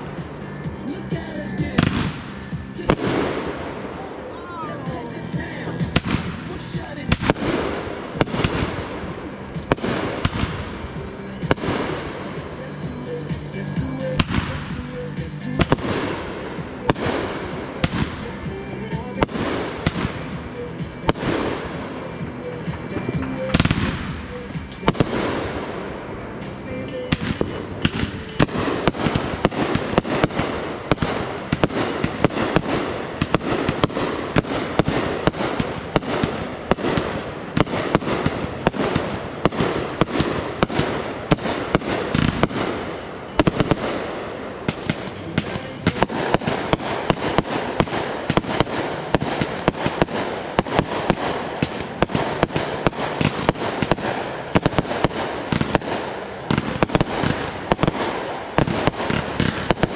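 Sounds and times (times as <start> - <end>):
firework aerial bursts: 0.0 - 59.9.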